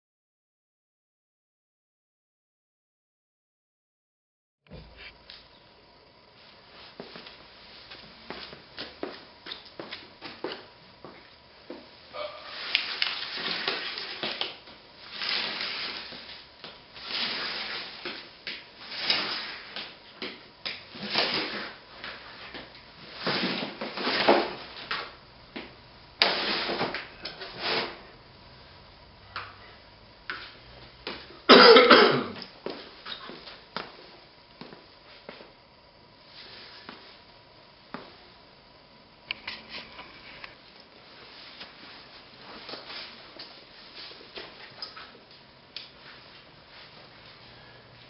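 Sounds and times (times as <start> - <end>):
vinyl flooring scraping on concrete: 12.5 - 20.0, 26.2 - 28.0.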